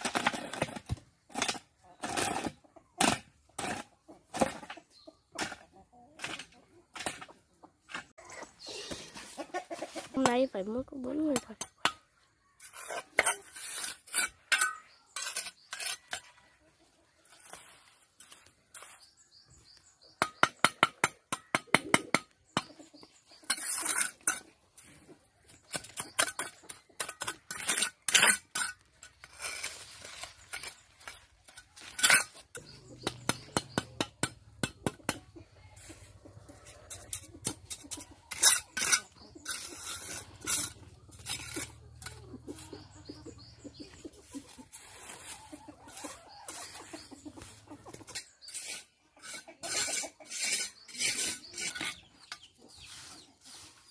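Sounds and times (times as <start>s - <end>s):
trowel scraping mortar: 12.6s - 16.4s, 23.3s - 35.1s, 36.6s - 43.9s, 48.0s - 52.9s
trowel tapping on bricks: 20.2s - 22.4s, 32.0s - 35.2s.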